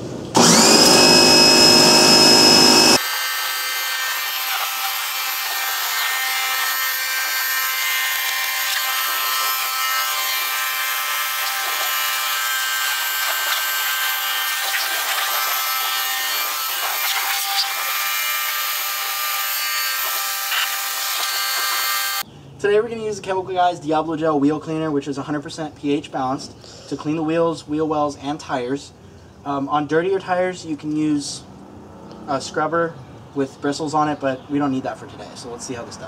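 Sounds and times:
pressure washer motor whining: 0.3 - 22.2
water spraying: 8.0 - 18.7.

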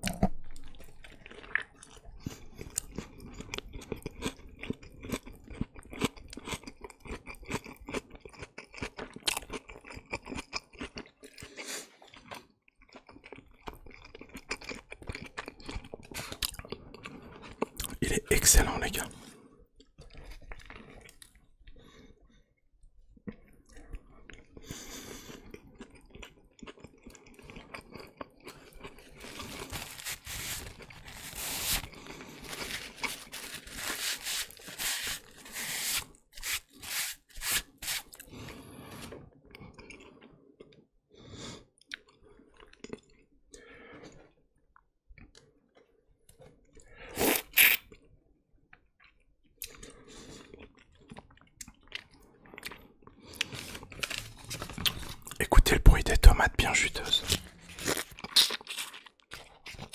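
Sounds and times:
chewing and crunching food: 0.0 - 18.1, 18.7 - 59.9
wet mouth sounds: 27.6 - 38.4, 47.1 - 47.9, 54.7 - 59.9.

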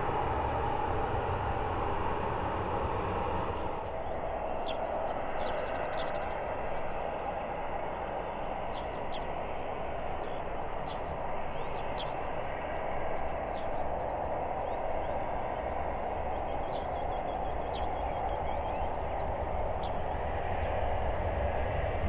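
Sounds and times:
distant jet engines roaring: 0.0 - 22.0
bird chirps: 16.0 - 20.0.

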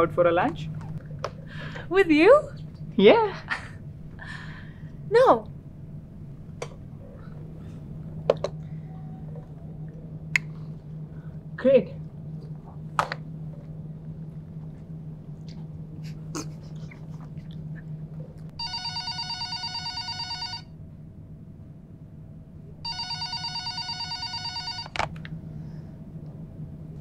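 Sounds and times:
steady low hum: 0.0 - 27.0
telephone ringing: 18.6 - 20.7, 22.8 - 25.1.

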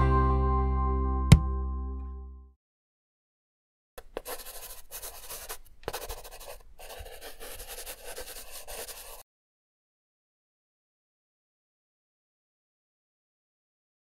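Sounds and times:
pencil scribbling on paper: 4.0 - 9.2.

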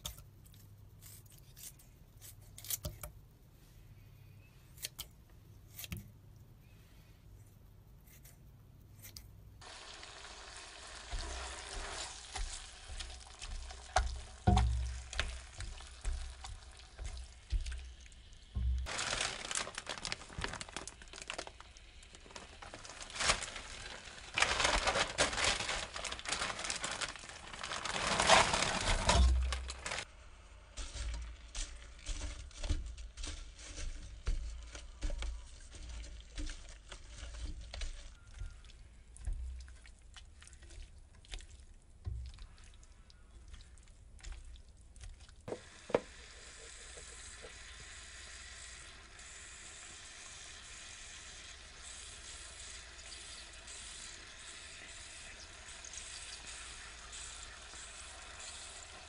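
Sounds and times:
spatula stirring: 8.1 - 18.9, 27.2 - 47.6
food sizzling in a pan: 9.6 - 19.2, 45.5 - 59.0.

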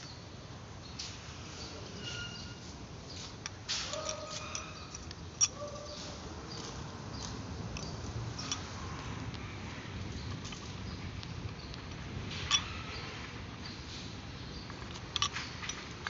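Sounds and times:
light metal scraping: 1.0 - 16.0
small metal clicks: 3.3 - 9.4, 10.1 - 13.8, 14.6 - 16.0.

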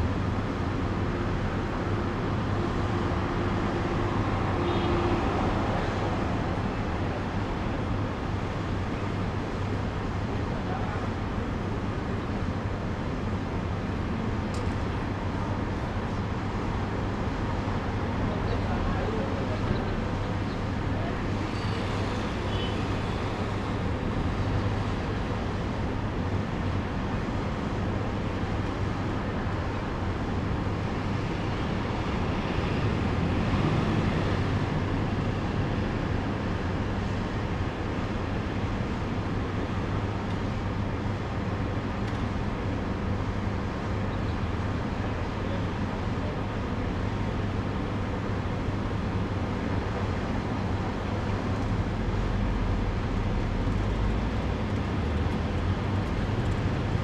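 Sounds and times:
cars driving past: 31.1 - 35.3.

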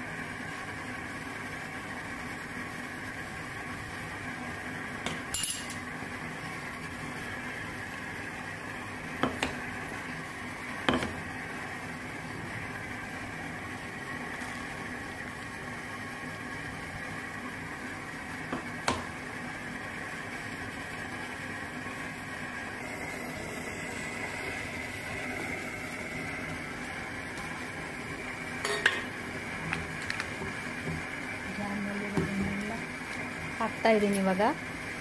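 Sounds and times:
stew boiling in a pot: 0.0 - 35.0
metal spoon clinking on pot: 28.6 - 29.0.

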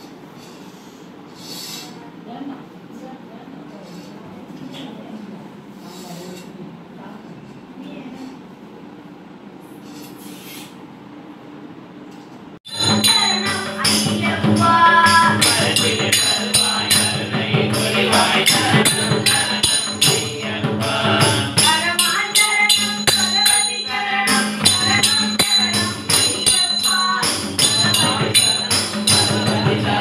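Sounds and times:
boys singing together: 12.7 - 30.0
hand-played barrel drum: 12.7 - 30.0
small percussion beat: 12.7 - 30.0.

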